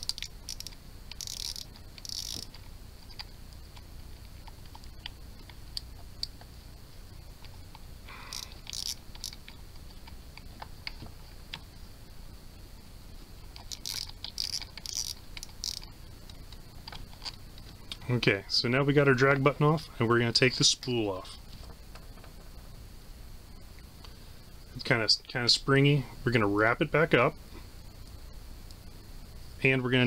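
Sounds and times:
scratchy rubbing: 0:00.0 - 0:03.2.

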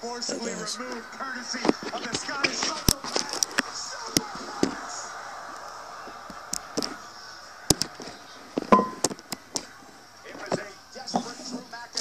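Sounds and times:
sharp clicks and pops: 0:07.7 - 0:09.4.

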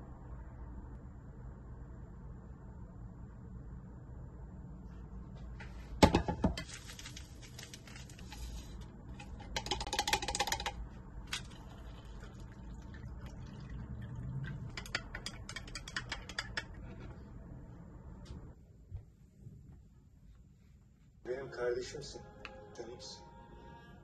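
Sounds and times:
dried herbs rattling from shaker: 0:06.6 - 0:10.8.

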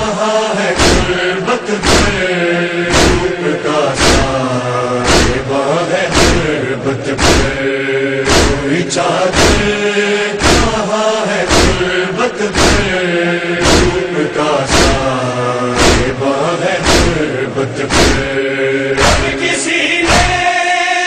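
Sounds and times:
men chanting in unison: 0:00.0 - 0:21.0
chest-beating strikes: 0:00.8 - 0:02.3, 0:02.9 - 0:03.4, 0:04.0 - 0:04.4, 0:05.0 - 0:06.5, 0:07.2 - 0:07.6, 0:08.2 - 0:09.8, 0:10.4 - 0:10.8, 0:11.5 - 0:11.9, 0:12.5 - 0:13.0, 0:13.6 - 0:14.1, 0:14.7 - 0:15.1, 0:15.8 - 0:16.2, 0:16.8 - 0:18.4, 0:19.0 - 0:20.5.

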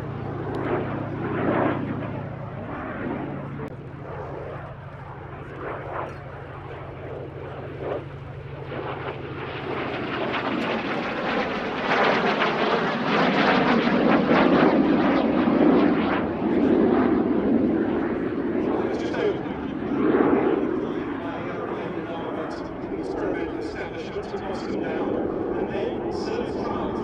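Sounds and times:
radial aircraft engine droning: 0:00.0 - 0:27.0.

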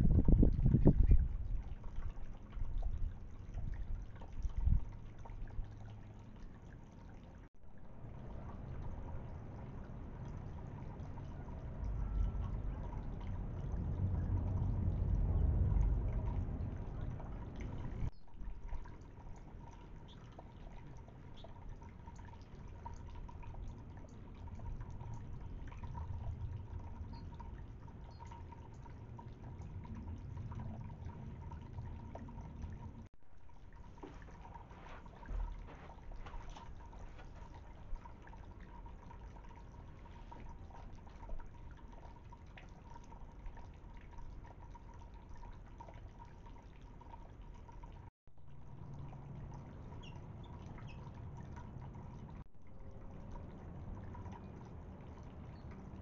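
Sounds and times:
fountain water trickling: 0:00.0 - 0:56.0
faint high tone: 0:11.8 - 0:13.0.

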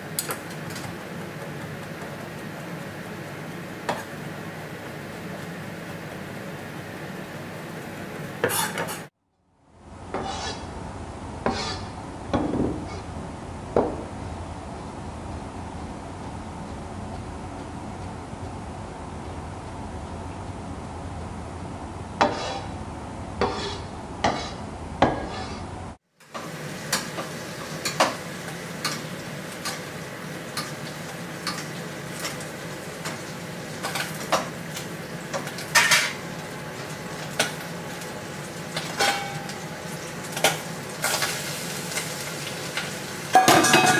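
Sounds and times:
fish frying sizzle: 0:00.0 - 0:09.1, 0:26.1 - 0:43.9
metal spoon clinking on pan: 0:39.0 - 0:39.6, 0:43.3 - 0:43.9.

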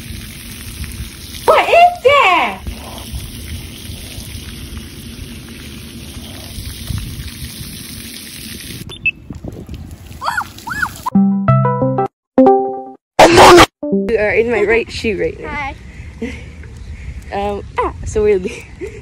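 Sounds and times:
water spraying onto concrete: 0:00.0 - 0:11.1.

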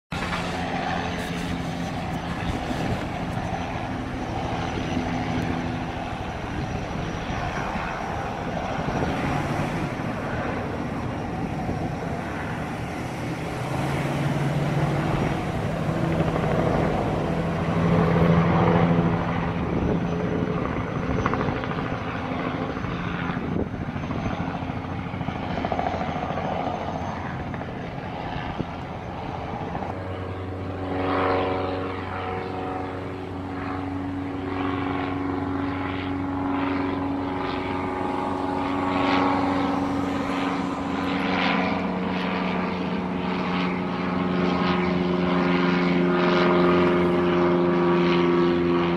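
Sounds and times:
helicopter flying overhead: 0:00.1 - 0:48.9.

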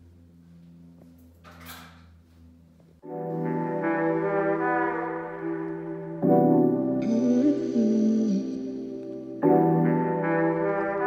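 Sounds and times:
music with held chords: 0:02.6 - 0:11.0
slow melody line: 0:03.0 - 0:11.0.

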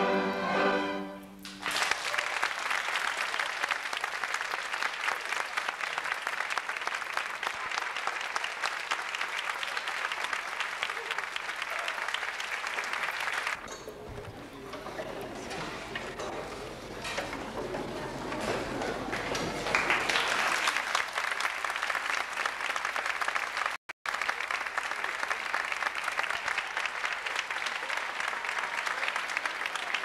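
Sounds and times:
string orchestra chord: 0:00.0 - 0:01.5
audience applause: 0:01.2 - 0:30.0.

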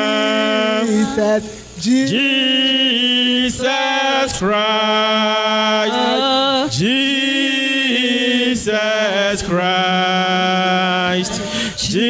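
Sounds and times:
woman singing chant into microphone: 0:05.8 - 0:06.8, 0:10.8 - 0:12.0.

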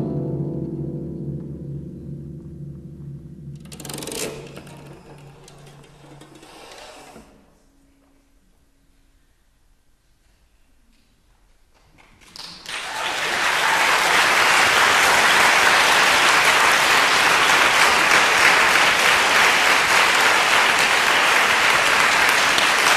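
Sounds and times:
audience applause: 0:12.2 - 0:22.9.

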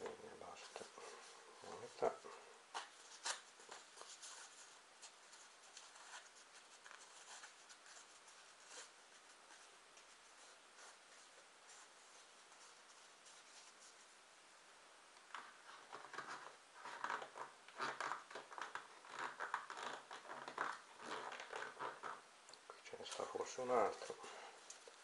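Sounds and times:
cardboard rustling and scraping: 0:00.0 - 0:14.1.

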